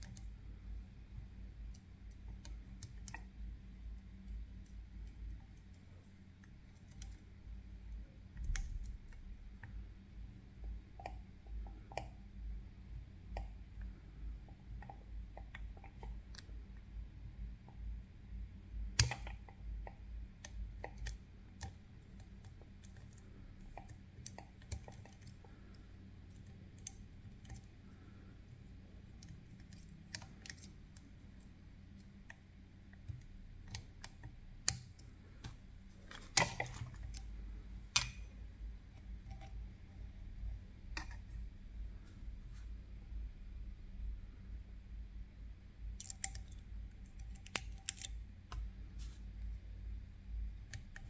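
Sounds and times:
lock picking metal clicks: 0:45.9 - 0:48.2.

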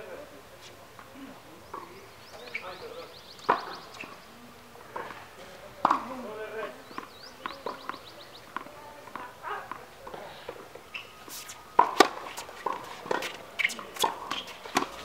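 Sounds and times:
tennis ball bounces: 0:03.4 - 0:04.2, 0:04.9 - 0:15.0.

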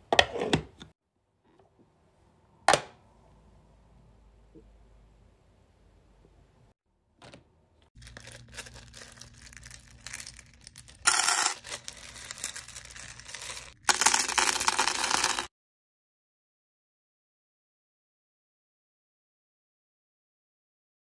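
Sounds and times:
wax beads rattling in metal bowl: 0:08.0 - 0:15.5.

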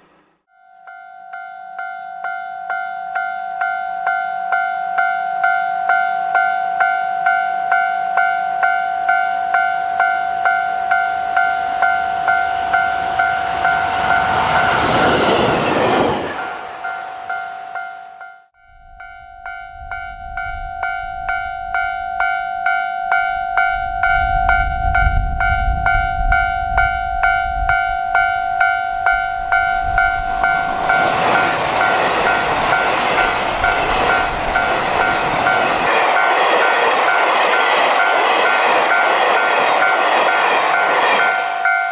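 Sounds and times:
level crossing bell ringing: 0:00.5 - 0:14.7, 0:16.4 - 0:38.6
train wheels clattering on rails: 0:29.8 - 0:41.9.

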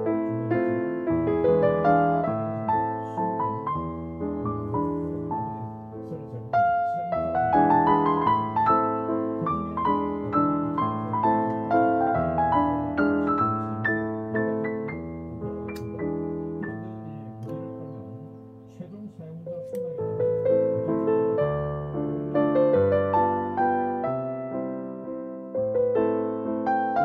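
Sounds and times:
gentle piano music: 0:00.0 - 0:27.0.

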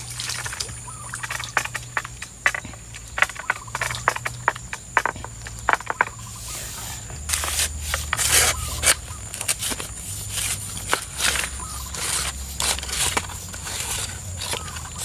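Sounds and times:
rustling and scraping swishes: 0:05.9 - 0:15.0.

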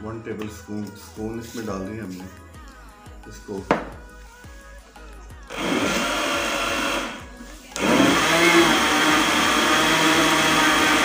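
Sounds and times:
blender grinding: 0:05.5 - 0:11.0.

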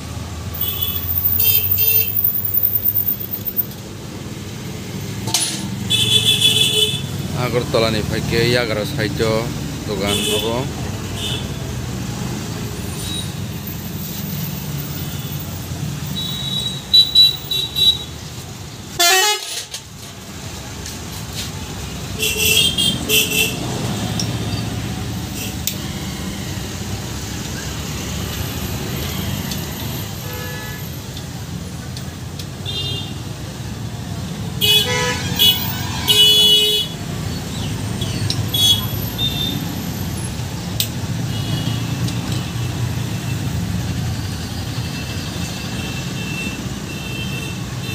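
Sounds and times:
road traffic passing: 0:00.0 - 0:47.9
vehicle horns honking: 0:00.6 - 0:02.4, 0:05.8 - 0:07.2, 0:10.0 - 0:11.6, 0:16.1 - 0:18.2, 0:19.0 - 0:19.8, 0:22.2 - 0:23.6, 0:30.2 - 0:31.0, 0:34.6 - 0:37.0, 0:38.5 - 0:39.6, 0:45.5 - 0:47.9.

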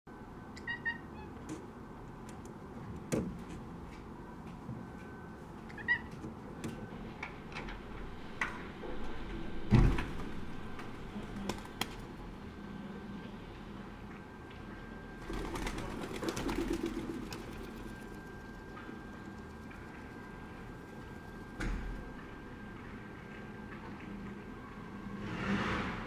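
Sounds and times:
cat chirping: 0:00.6 - 0:01.4.

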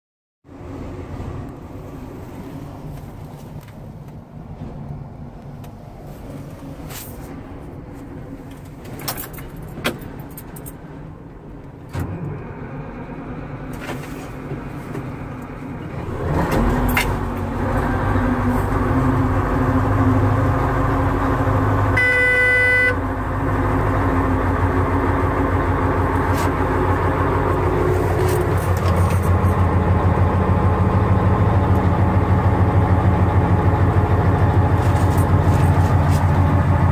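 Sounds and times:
diesel engine running: 0:00.5 - 0:36.9
horn-like tone: 0:22.0 - 0:23.0.

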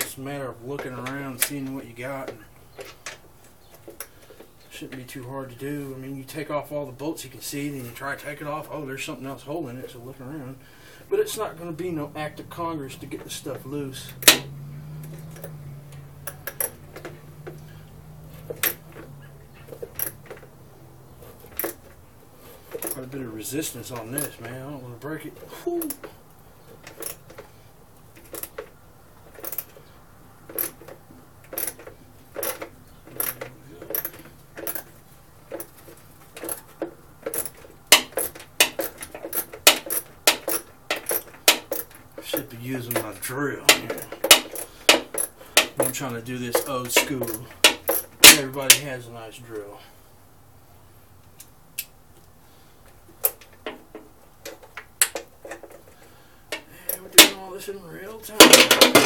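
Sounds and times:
hand tools clicking on metal cover: 0:00.0 - 0:05.0, 0:11.1 - 0:48.9, 0:51.3 - 0:57.5, 0:58.1 - 0:59.0
ratchet wrench clicking: 0:43.7 - 0:48.8.

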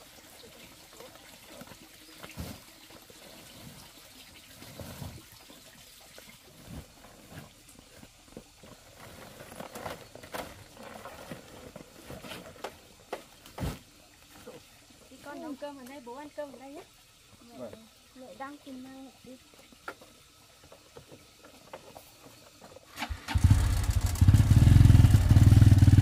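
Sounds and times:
sacks rustling and bumping: 0:02.2 - 0:02.7, 0:06.5 - 0:14.6.

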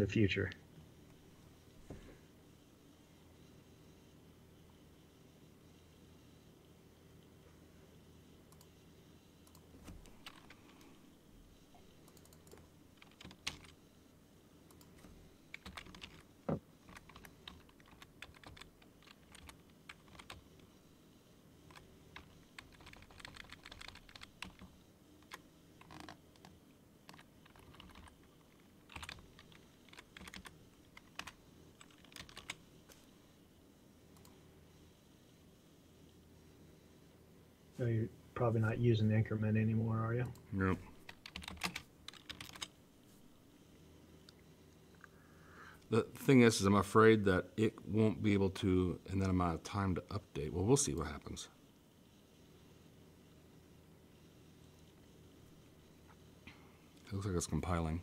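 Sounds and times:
faint low hum: 0:00.0 - 0:58.0
typing on computer keyboard: 0:12.1 - 0:13.8, 0:14.7 - 0:20.6, 0:21.7 - 0:32.6, 0:41.1 - 0:42.7.

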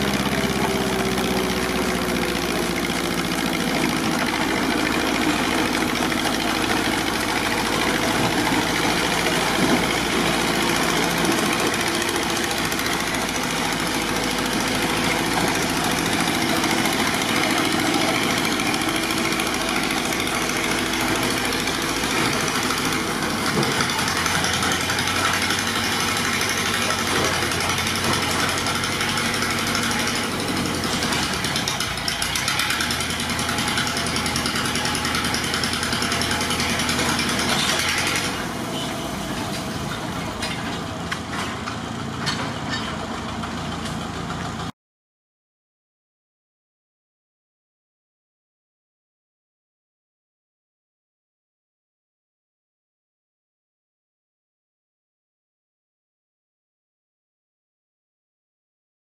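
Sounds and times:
compressor engine running: 0:00.0 - 0:39.4.

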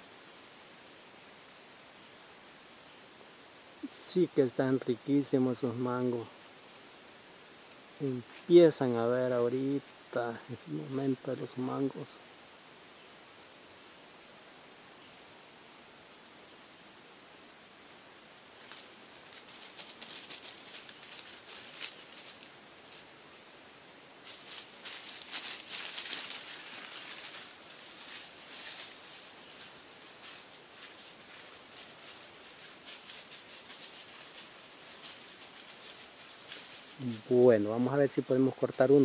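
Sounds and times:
dry leaves and brush crackling: 0:18.5 - 0:23.6, 0:24.2 - 0:39.0.

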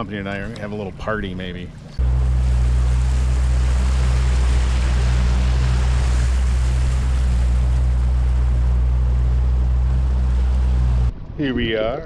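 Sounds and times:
outboard motor drone: 0:00.0 - 0:11.2
wind: 0:00.0 - 0:12.0
water hissing: 0:02.0 - 0:11.1.

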